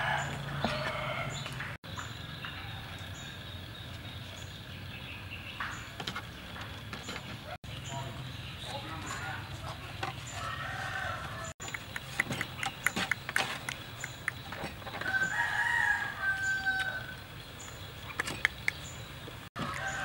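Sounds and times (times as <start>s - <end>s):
rooster crowing: 0.0s - 1.4s, 10.4s - 11.6s, 15.0s - 17.2s, 19.6s - 20.0s.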